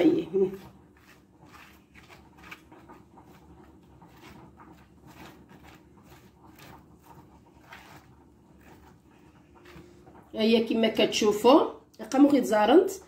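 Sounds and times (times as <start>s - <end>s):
low room hum: 0.0s - 13.0s
handling rustles and scrapes: 0.4s - 10.3s.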